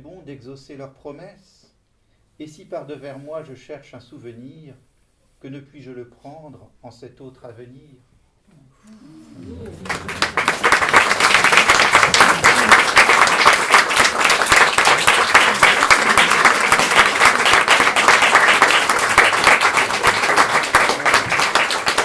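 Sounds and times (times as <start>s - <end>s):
audience applauding: 9.1s - 22.0s.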